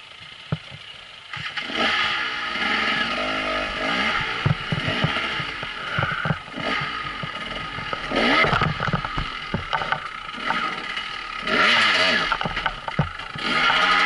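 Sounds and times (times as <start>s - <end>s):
dirt bike engine revving: 1.3s - 14.0s
bike clattering and knocking: 3.6s - 14.0s.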